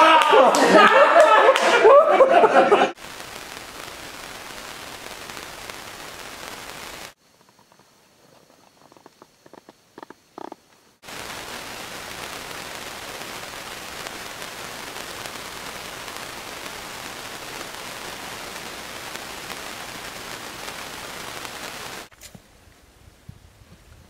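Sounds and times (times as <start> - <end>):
steady outdoor hiss: 0.8 - 24.0.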